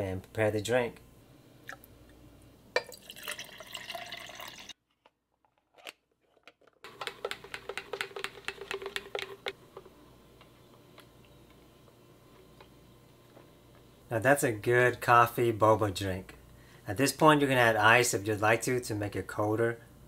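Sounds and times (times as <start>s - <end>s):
liquid poured into cup: 2.8s - 4.8s
straw clicking and scraping in tumbler: 5.0s - 11.6s.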